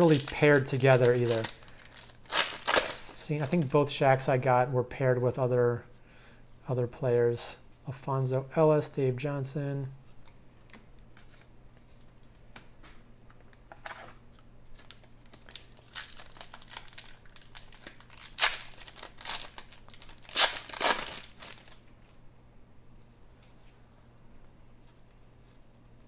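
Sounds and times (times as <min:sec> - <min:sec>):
foil wrapper tearing and crinkling: 0:00.0 - 0:03.8, 0:14.7 - 0:22.0.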